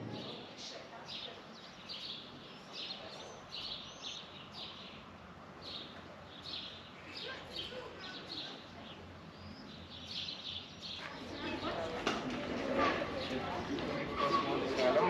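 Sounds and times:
small birds chirping: 0.0 - 12.3
faint outdoor background noise: 0.0 - 15.0.

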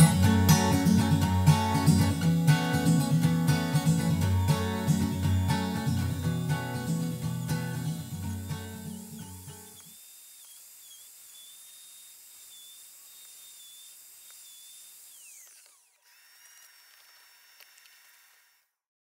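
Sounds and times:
higher steady whine: 0.0 - 9.8
router motor whine: 3.9 - 18.8.

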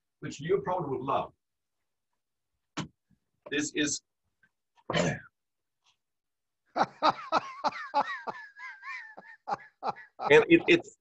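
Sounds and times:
man laughing: 6.7 - 11.0.

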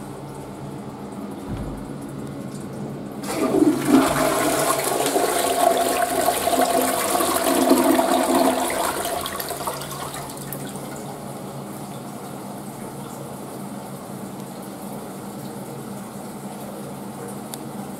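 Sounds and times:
toilet flushing: 0.0 - 14.0.

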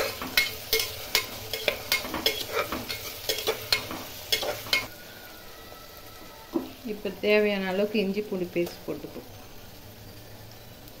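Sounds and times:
spatula scraping a pot: 0.0 - 4.9
onions sizzling in hot oil: 0.0 - 11.0.

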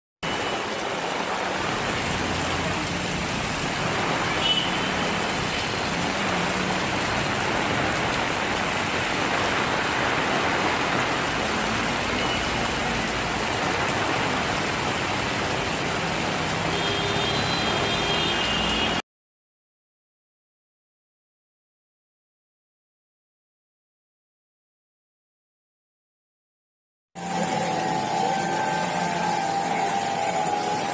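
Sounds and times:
heavy rain pouring on road: 0.2 - 19.0, 27.2 - 30.9
traffic running: 0.4 - 19.0, 27.2 - 30.9.

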